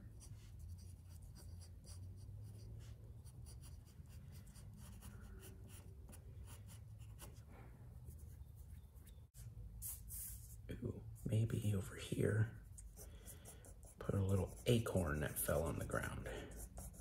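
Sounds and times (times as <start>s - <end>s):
pencil scratching on paper: 0.0s - 7.5s, 12.6s - 17.0s.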